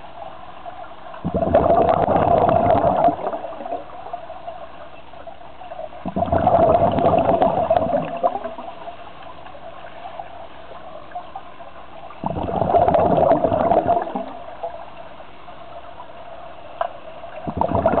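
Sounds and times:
faint steady tone: 0.0 - 12.6, 13.5 - 18.0
underwater exhaust bubbles gurgling: 0.0 - 18.0.

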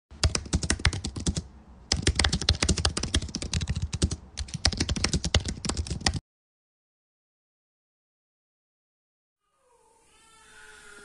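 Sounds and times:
keyboard typing: 0.2 - 6.2.

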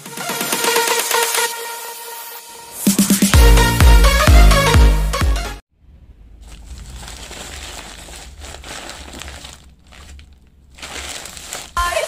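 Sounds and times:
plastic mailer and bubble wrap crinkling: 6.3 - 12.0.

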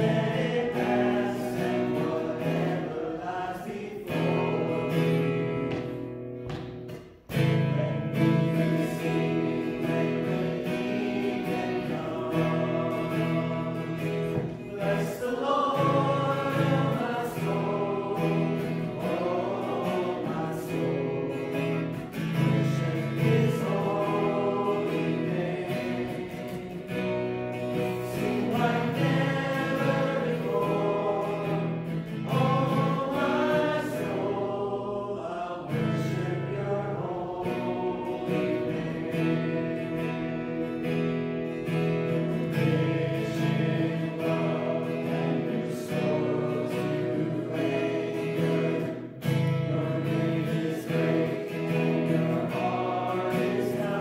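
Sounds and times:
choir singing worship song: 0.0 - 6.4, 7.0 - 54.0
acoustic guitar: 0.0 - 54.0.

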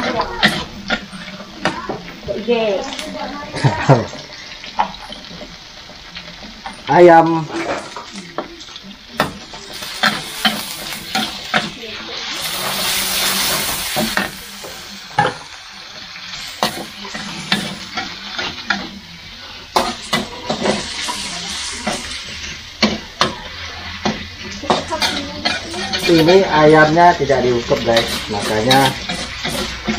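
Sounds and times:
chicken sizzling in hot oil: 0.0 - 29.9
metal spatula scraping wok: 9.6 - 14.7, 23.8 - 29.9.

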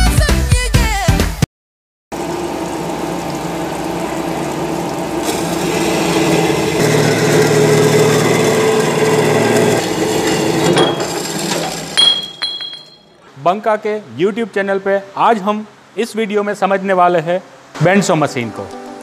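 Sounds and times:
band saw cutting metal pipe: 2.3 - 12.4.

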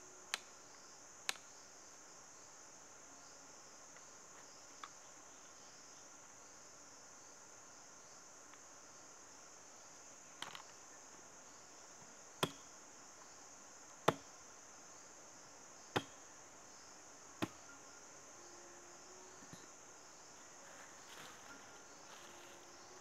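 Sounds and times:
insects droning: 0.0 - 23.0
machete chopping wooden log: 12.4 - 12.7, 14.0 - 14.3, 15.9 - 16.2, 17.4 - 17.7.

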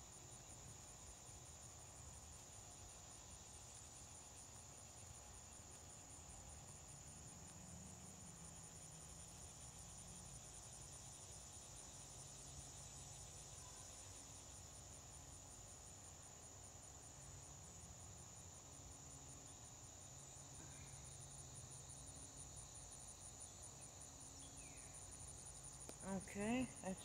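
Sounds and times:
crickets chirping: 0.0 - 27.0.

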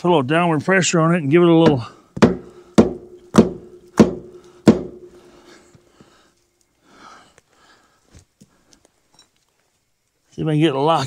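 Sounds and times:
hammer blows on steel: 1.6 - 5.4.

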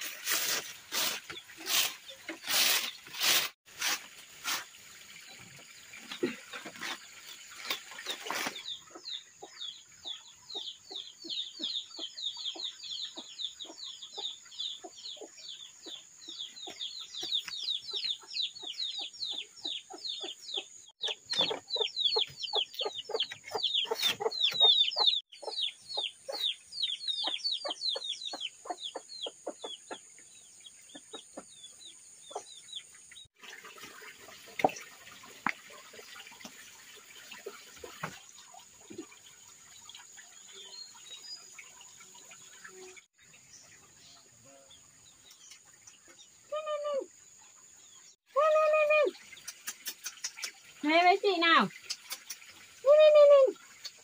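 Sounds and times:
broom sweeping bamboo floor: 0.0 - 5.5, 6.2 - 8.6
chicks peeping: 8.2 - 32.9.

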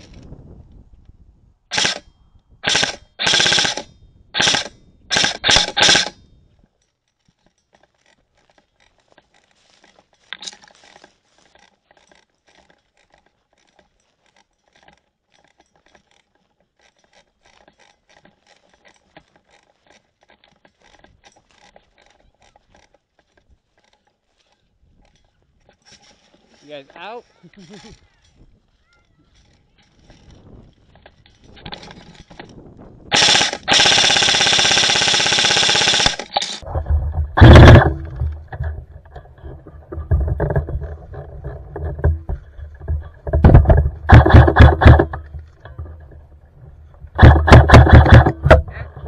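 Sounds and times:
airsoft gun full-auto bursts: 1.7 - 2.0, 2.6 - 6.2, 33.1 - 36.6, 37.4 - 38.0, 44.1 - 45.2, 47.2 - 48.6.

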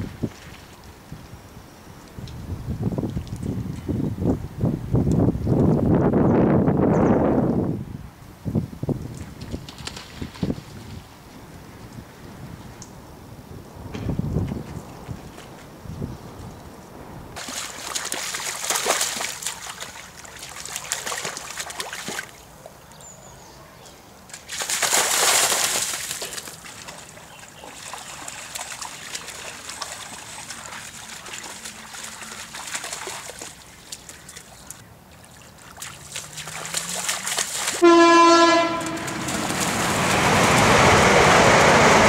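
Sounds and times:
animals splashing through water: 9.2 - 11.1, 17.4 - 22.8, 24.3 - 42.0.

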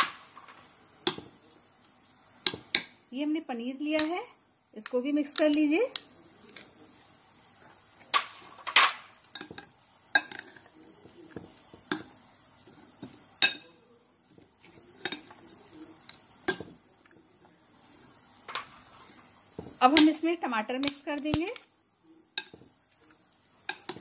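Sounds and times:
spoon clinking against glass bowl: 13.4 - 13.8.

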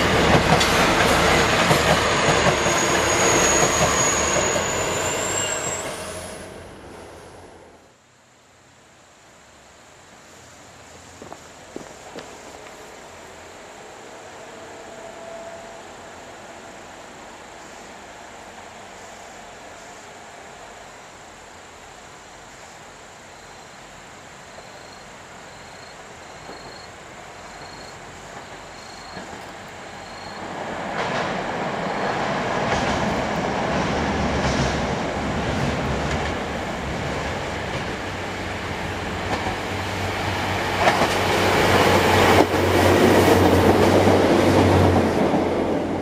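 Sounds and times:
diesel railcar engine: 0.0 - 8.0, 23.9 - 46.0.

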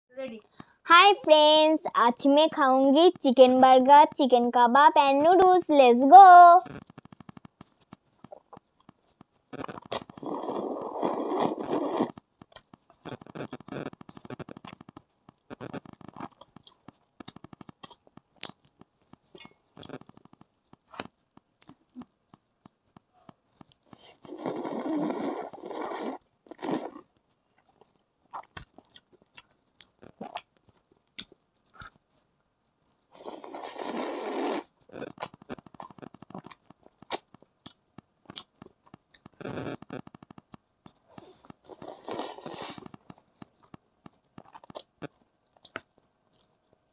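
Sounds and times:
chewing: 6.7 - 46.8
slurping noodles: 9.6 - 12.2, 23.9 - 27.0, 33.2 - 36.6, 41.2 - 43.0.

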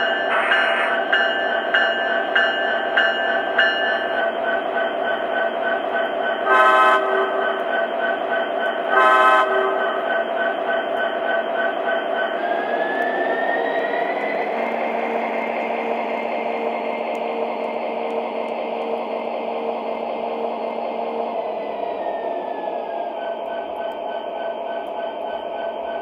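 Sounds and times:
locomotive bell ringing: 0.0 - 13.4.

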